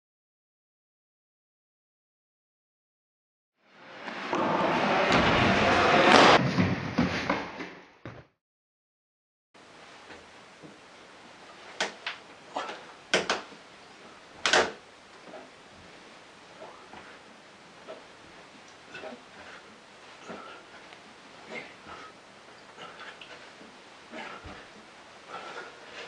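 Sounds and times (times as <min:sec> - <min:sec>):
loud rushing noise: 0:03.7 - 0:06.4
hands slapping wooden board: 0:11.8 - 0:12.2, 0:13.1 - 0:13.6, 0:14.4 - 0:14.8.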